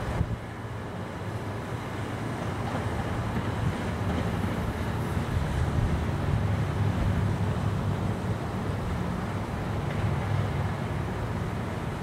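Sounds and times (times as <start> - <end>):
wind rumble on microphone: 0.0 - 0.7, 2.6 - 11.4.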